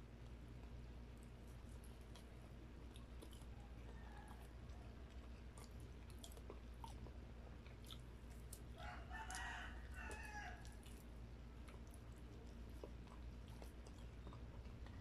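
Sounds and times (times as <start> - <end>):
chewing and mouth clicks: 0.1 - 15.0
rooster crowing: 3.6 - 4.9, 8.7 - 10.8.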